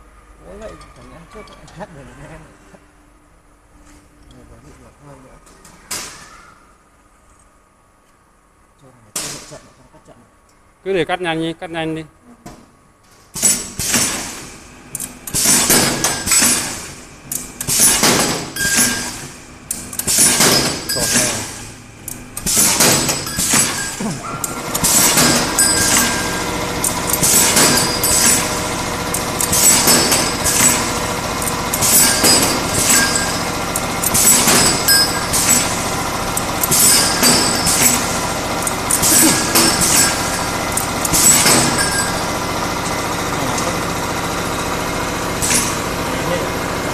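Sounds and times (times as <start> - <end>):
machine noise bursts: 13.5 - 46.9
tube cutting machine running: 14.9 - 46.9.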